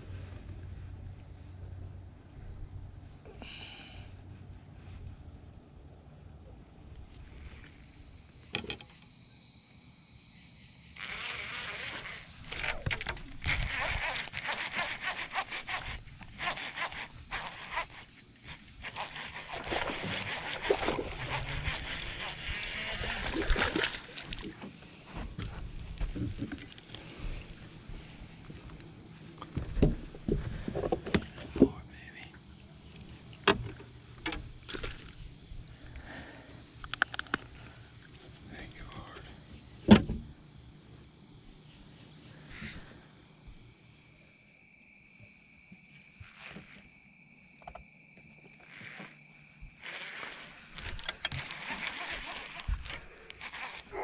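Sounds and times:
gear knocking and clicking: 12.4 - 23.3
clothing rubbing on microphone: 18.8 - 23.4, 48.6 - 54.0.

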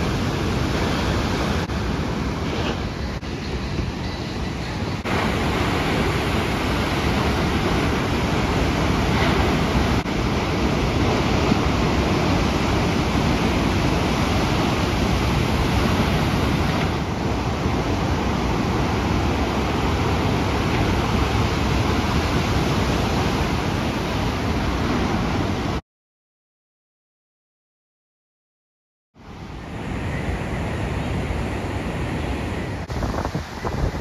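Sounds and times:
ocean waves breaking: 0.0 - 25.8.

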